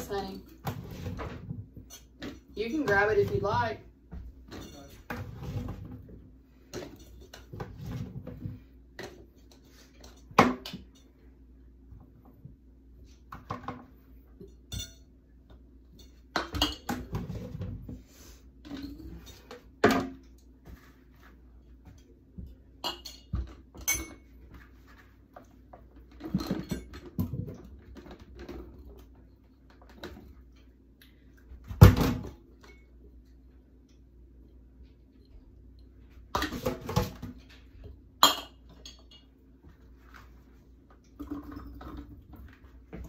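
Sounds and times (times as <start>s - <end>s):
kitchenware clattering: 4.4s - 8.4s, 13.4s - 15.1s, 15.9s - 17.8s, 21.8s - 24.4s, 26.0s - 29.1s, 36.4s - 39.4s.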